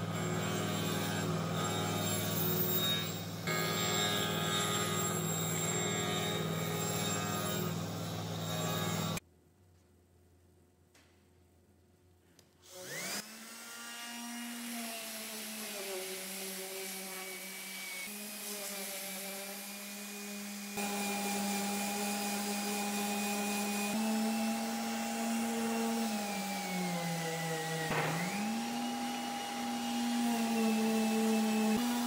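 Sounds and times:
orbital sander running: 0:14.6 - 0:32.0.

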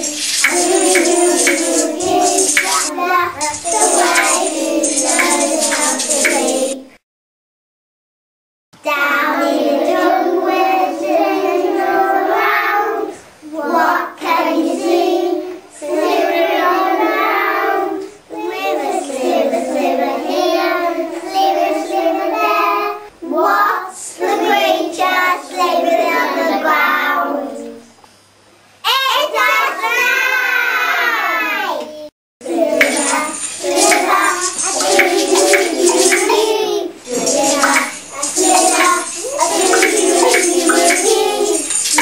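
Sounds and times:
young children singing: 0:00.0 - 0:07.0, 0:08.8 - 0:27.9, 0:29.6 - 0:42.0.

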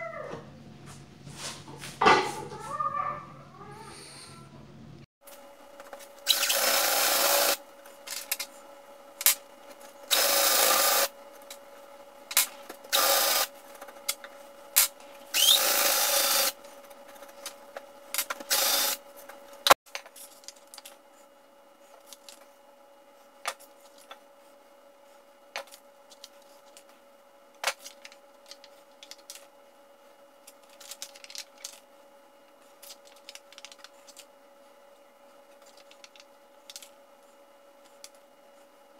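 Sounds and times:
power drill boring into wood: 0:06.3 - 0:07.6, 0:10.1 - 0:11.1, 0:12.9 - 0:13.5, 0:15.3 - 0:16.6, 0:18.4 - 0:19.0.

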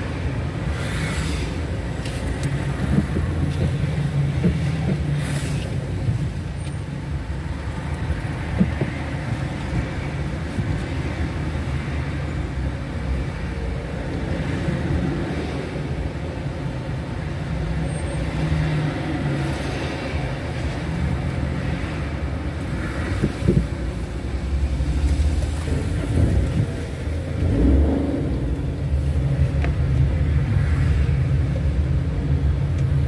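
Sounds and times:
car engine rumble: 0:00.0 - 0:33.0
road noise: 0:00.0 - 0:33.0.

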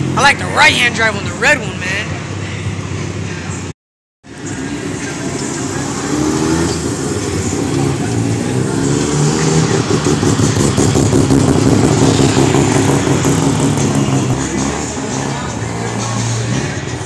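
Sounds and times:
sports cars driving past revving: 0:04.3 - 0:17.0.

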